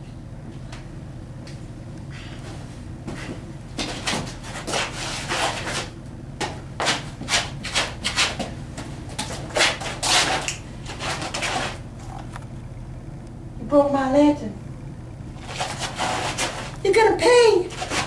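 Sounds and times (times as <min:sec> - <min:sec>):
shoes scraping on concrete: 0:02.4 - 0:12.3, 0:15.4 - 0:16.8.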